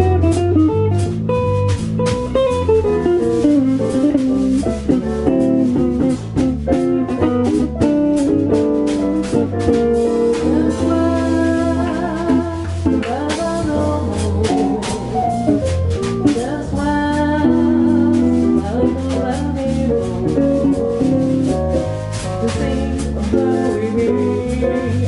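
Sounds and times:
cymbals keeping swing time: 0.0s - 25.0s
jazz band playing: 0.0s - 25.0s
woman singing: 10.3s - 20.7s, 22.4s - 25.0s.

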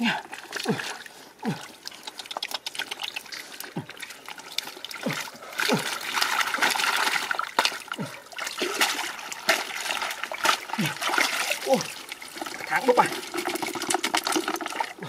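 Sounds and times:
muddy water splashing and trickling: 0.0s - 15.0s.

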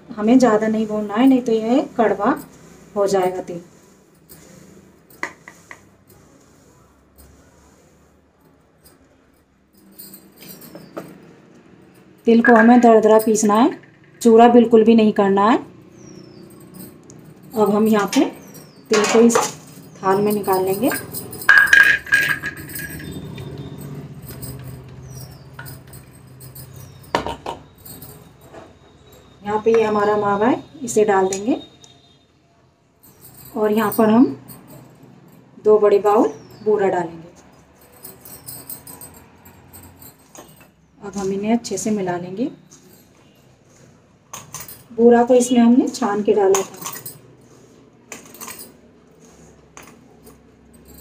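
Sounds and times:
jar clinking on steel bowl: 20.4s - 23.3s.

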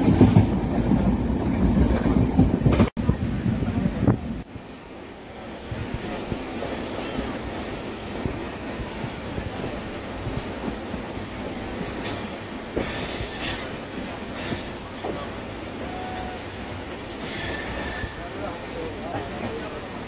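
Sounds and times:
train knocks and clatter: 0.0s - 4.7s, 5.5s - 20.0s
train wheels rumbling on rails: 0.0s - 20.0s
high-pitched hiss and screech: 17.1s - 19.2s.

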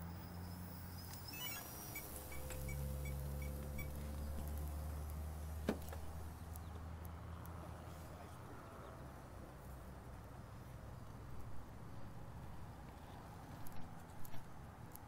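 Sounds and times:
short high electronic beeps: 1.2s - 3.9s.

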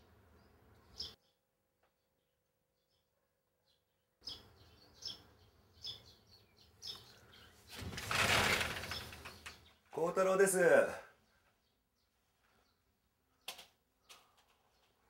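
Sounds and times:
sliding glass door opening: 7.7s - 9.6s.

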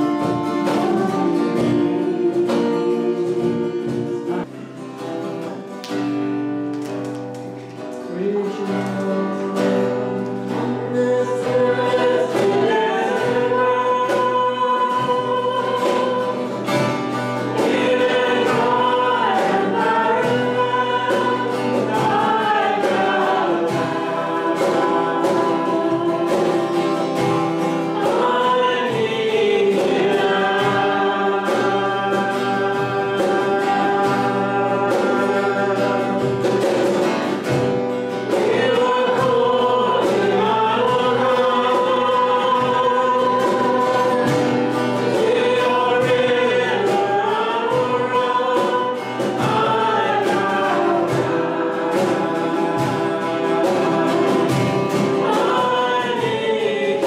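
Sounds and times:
group singing worship song: 0.0s - 5.7s, 7.8s - 57.0s
instrumental backing: 0.0s - 57.0s.

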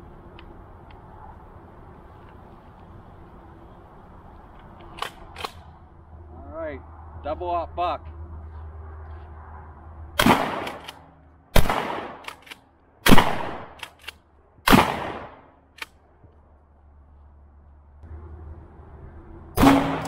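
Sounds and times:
shotgun firing: 10.2s - 10.8s, 11.6s - 12.2s, 13.0s - 13.8s, 14.7s - 15.4s, 19.6s - 20.0s.

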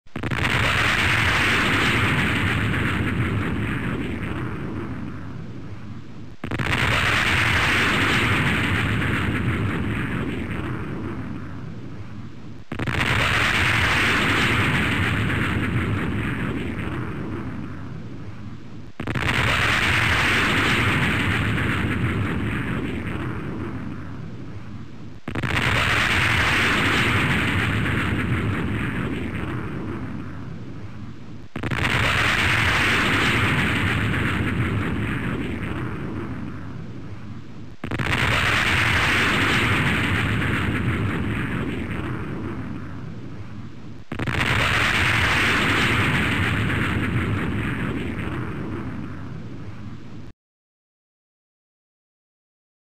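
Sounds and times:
jet sonic boom with rushing roar: 0.2s - 5.2s, 6.4s - 11.6s, 12.7s - 17.8s, 25.3s - 30.4s, 31.6s - 36.7s, 37.8s - 43.1s, 44.1s - 49.3s
jet aircraft boom and roar: 31.6s - 49.4s.

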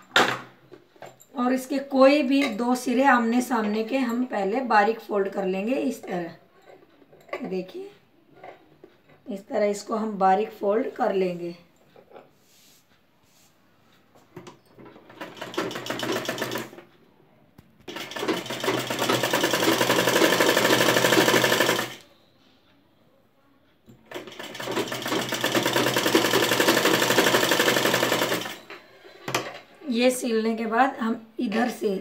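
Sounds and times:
sewing machine stitching: 14.8s - 16.8s, 17.9s - 22.0s, 24.0s - 29.4s.

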